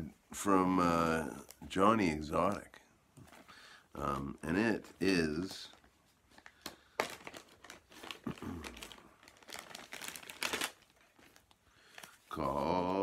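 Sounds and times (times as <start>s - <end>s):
plastic bag crinkling: 3.2s - 13.0s.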